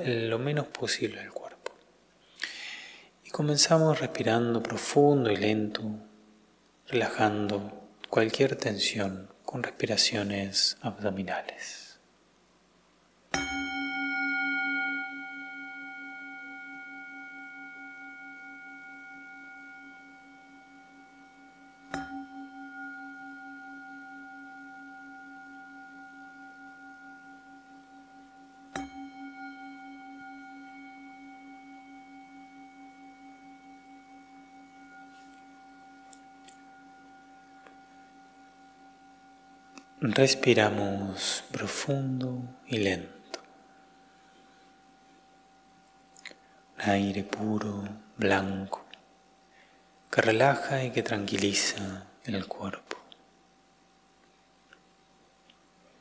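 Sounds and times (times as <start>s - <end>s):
singing bowl ringing: 13.3s - 51.9s.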